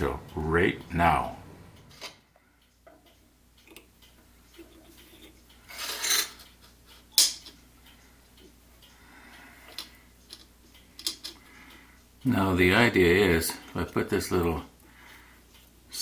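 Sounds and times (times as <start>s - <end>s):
metal scrape: 5.7s - 6.4s.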